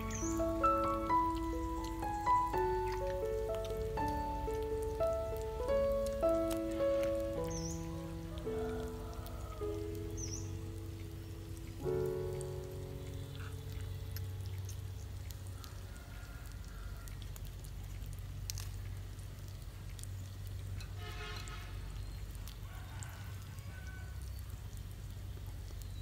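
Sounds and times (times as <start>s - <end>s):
meat sizzling on a griddle: 0.0s - 12.9s.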